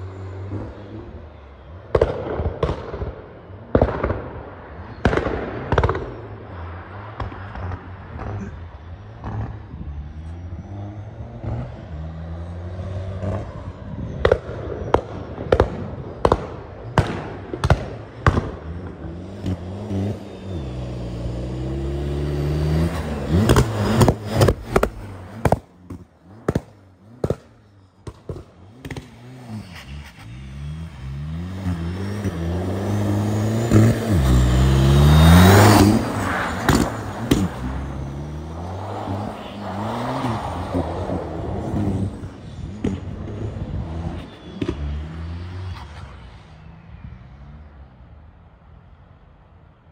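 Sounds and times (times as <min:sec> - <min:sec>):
car driving away: 0:00.0 - 0:49.2
car engine revving: 0:05.0 - 0:47.8
sharp exhaust bangs: 0:14.1 - 0:45.9.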